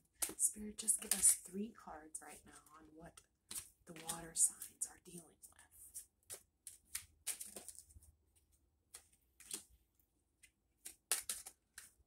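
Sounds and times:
cards being shuffled: 0:05.9 - 0:08.0, 0:08.9 - 0:09.7, 0:10.4 - 0:12.0.

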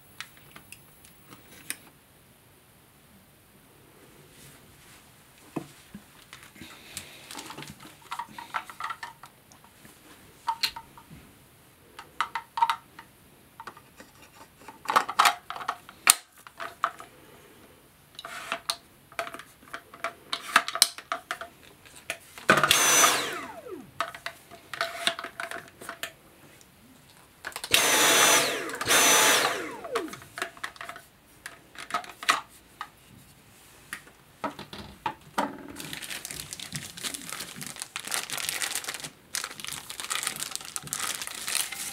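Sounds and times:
handheld vacuum motor: 0:22.5 - 0:24.2, 0:27.6 - 0:30.4.

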